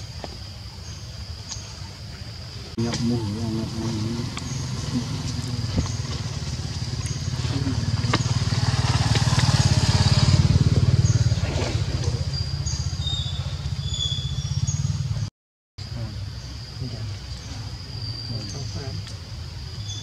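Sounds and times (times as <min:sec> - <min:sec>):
passing vehicle engine drone: 0:02.8 - 0:15.3.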